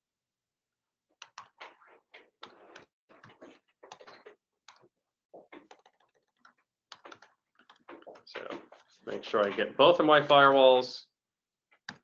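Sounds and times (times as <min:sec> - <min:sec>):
faint keyboard typing: 0:01.2 - 0:09.9, 0:11.7 - 0:12.0.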